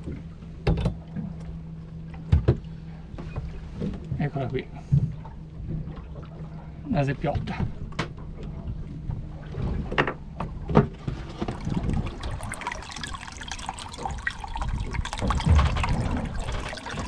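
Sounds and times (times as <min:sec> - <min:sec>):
water splashing into tub: 0:11.1 - 0:17.0.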